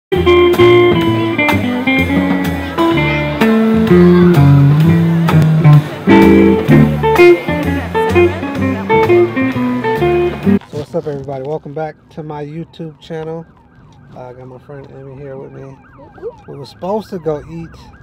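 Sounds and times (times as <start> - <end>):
drum kit hits: 0.1 - 10.6
upright double bass: 0.1 - 10.6
guitar: 0.1 - 11.2.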